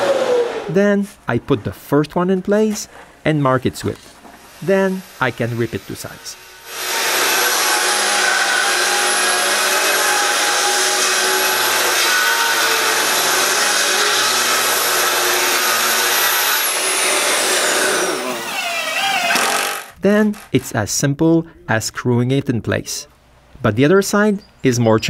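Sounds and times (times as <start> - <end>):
track saw cutting wood: 4.6 - 20.0
dust extractor running: 12.6 - 19.8.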